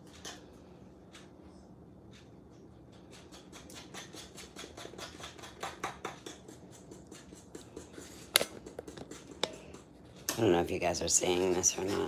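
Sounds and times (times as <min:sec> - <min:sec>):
fork beating eggs on stone: 0:02.2 - 0:10.4, 0:11.2 - 0:12.0.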